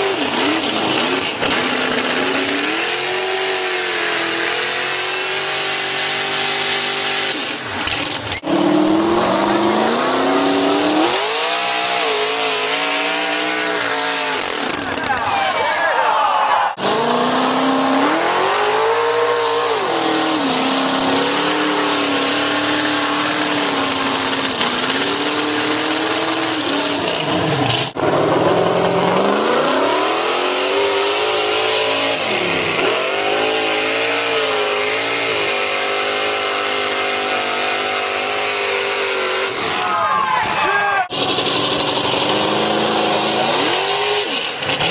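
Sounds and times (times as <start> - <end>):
truck engines revving: 0.0 - 44.9.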